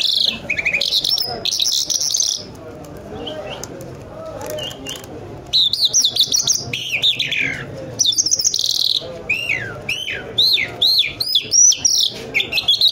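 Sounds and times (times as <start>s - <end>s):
buzzy bird trill: 5.5s - 12.9s.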